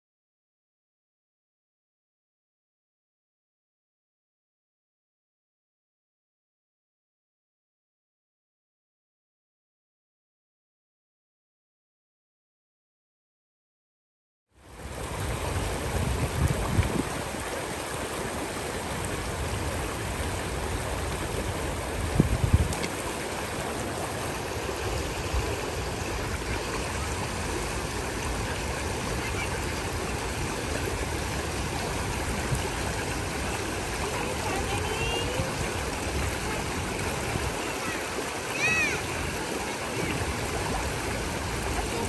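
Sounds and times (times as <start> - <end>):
creek rushing over stones: 14.6 - 42.0.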